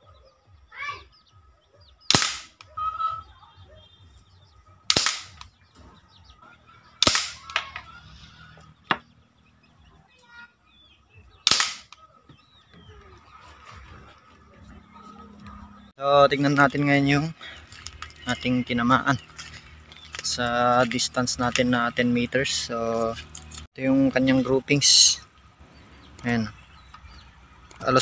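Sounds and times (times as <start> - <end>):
bird chirping: 0.0 - 28.0
toy gun shots: 2.1 - 2.6, 4.9 - 5.5, 7.0 - 7.8, 11.4 - 12.0.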